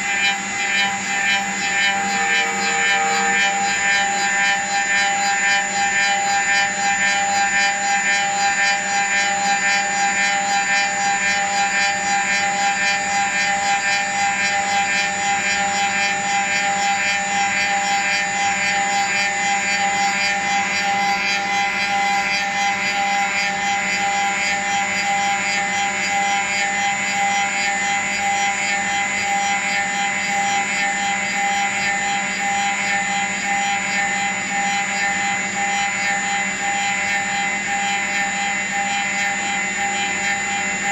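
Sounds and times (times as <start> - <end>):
wood cutting noise: 0.0 - 8.8
cutter spindle whining: 0.0 - 14.9.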